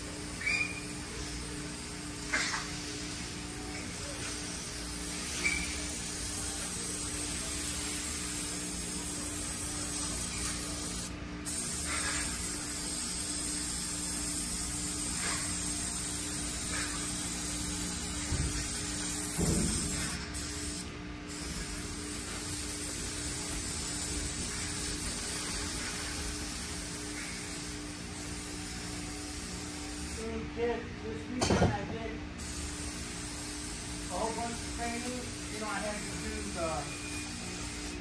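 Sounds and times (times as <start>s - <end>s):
low hum of shop equipment: 0.0s - 38.0s
aerosol spray can hissing: 4.6s - 26.6s.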